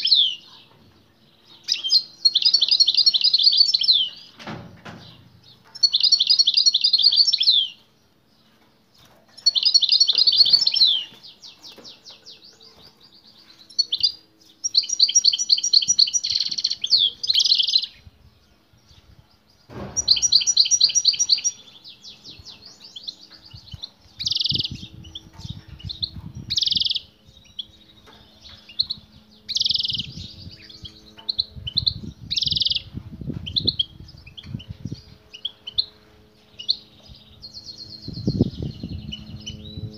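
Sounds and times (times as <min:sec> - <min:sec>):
goldfinch twittering trills: 0:20.0 - 0:32.9.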